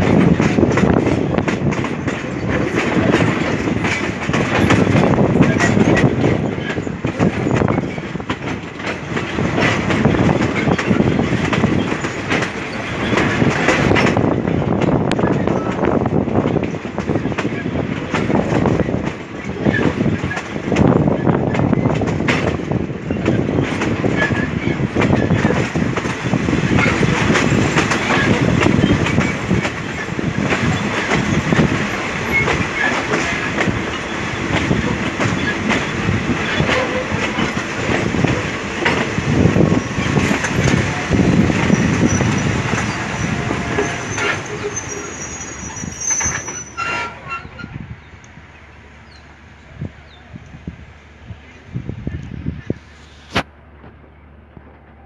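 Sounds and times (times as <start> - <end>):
wind rush: 0.0 - 44.8, 47.5 - 54.7
wheel clatter over rail joints: 0.0 - 49.7
train rolling rumble: 0.0 - 55.0
thin high squeal: 43.9 - 47.8.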